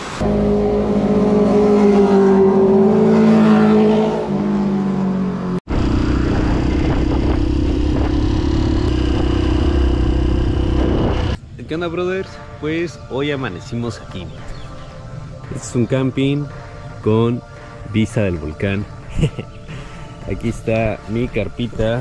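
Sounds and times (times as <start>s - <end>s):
motorcycle engine running: 5.7s - 11.4s
wind noise: 5.7s - 11.6s.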